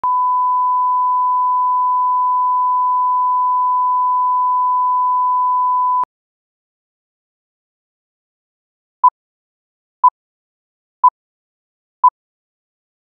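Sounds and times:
sine test tone: 0.0 - 6.0.

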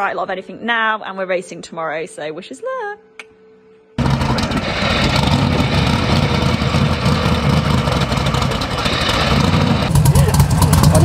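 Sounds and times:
race car engine running: 4.0 - 11.0.

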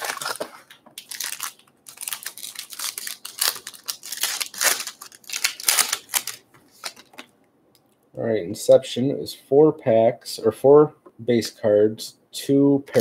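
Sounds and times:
plastic wrapping crinkling and tearing: 0.0 - 7.3.

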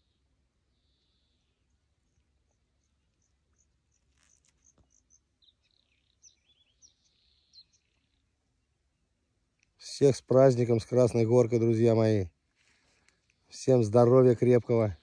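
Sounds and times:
faint high bird chirps: 0.0 - 8.4.

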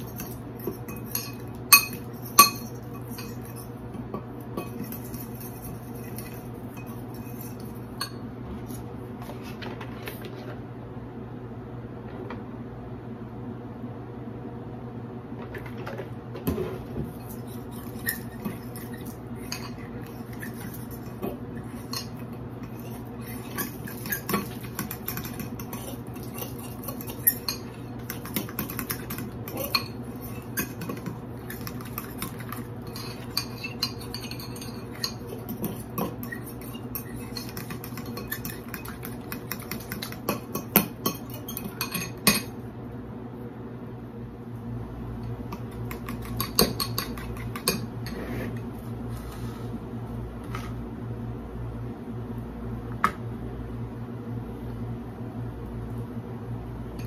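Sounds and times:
fork whisking batter in glass bowl: 0.0 - 8.9, 16.6 - 42.6, 45.5 - 48.7.

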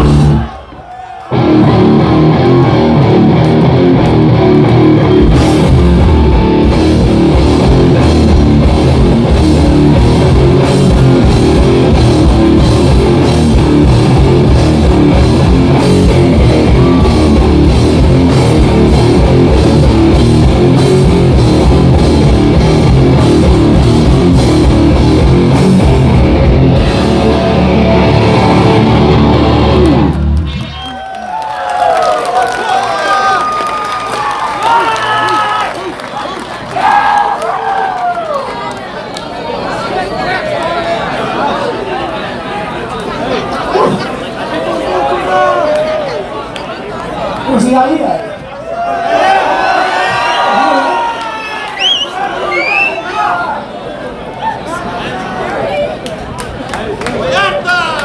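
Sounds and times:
live punk band playing: 0.0 - 0.5, 1.3 - 30.8.

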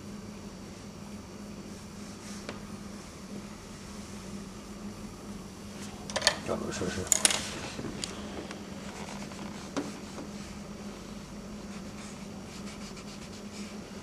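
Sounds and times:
pencil scratching on paper: 11.6 - 14.0.

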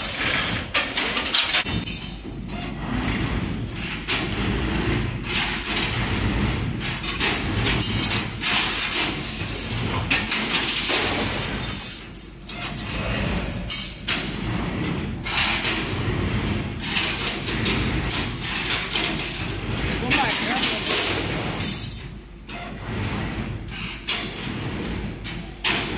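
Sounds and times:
rebar bending machine clattering: 0.0 - 25.9.

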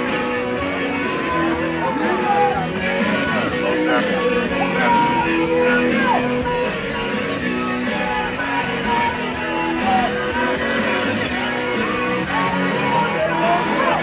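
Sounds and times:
rock music with guitar: 0.0 - 14.0.

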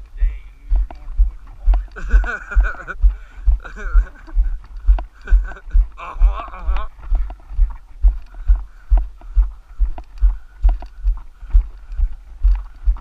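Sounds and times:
footsteps on dirt road: 0.0 - 13.0.

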